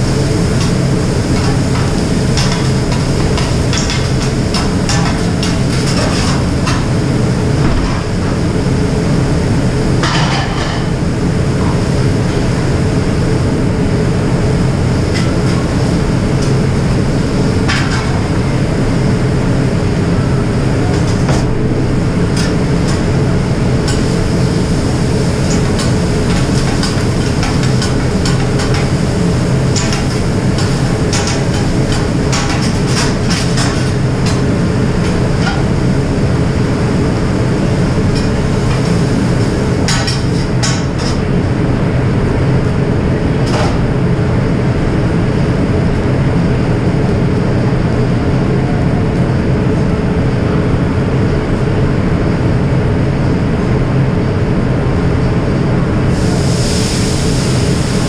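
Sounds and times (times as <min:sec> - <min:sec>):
exhaust hood rumble: 0:00.0 - 0:11.3.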